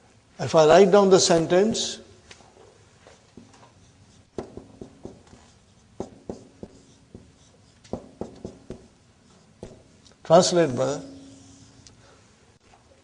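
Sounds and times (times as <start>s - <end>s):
marker writing on whiteboard: 3.1s - 10.0s, 10.9s - 11.8s.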